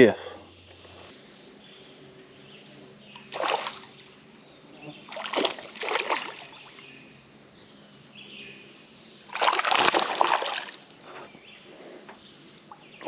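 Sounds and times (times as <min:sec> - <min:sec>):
fish splashing in water: 0:03.3 - 0:03.9, 0:05.1 - 0:06.7, 0:09.3 - 0:10.8.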